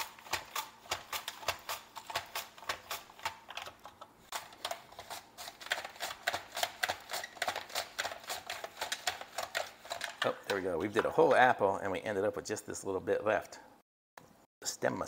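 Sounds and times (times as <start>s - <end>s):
apple slicing on mandoline blade: 0.0s - 10.6s.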